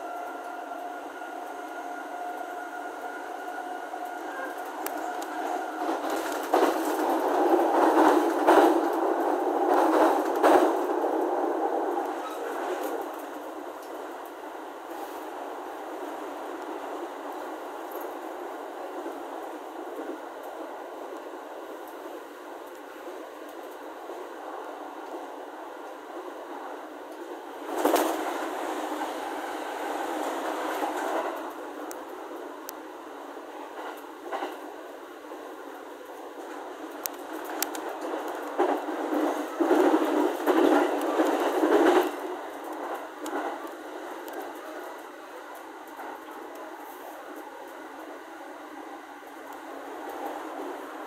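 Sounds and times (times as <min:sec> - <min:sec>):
train rolling noise: 0:00.0 - 0:51.0
sharp train clacks: 0:00.1 - 0:14.0, 0:27.6 - 0:32.0, 0:36.4 - 0:46.7.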